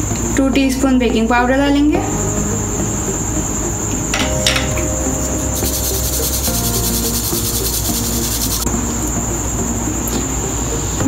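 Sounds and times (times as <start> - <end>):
high-pitched cricket-like trill: 2.0 - 10.0.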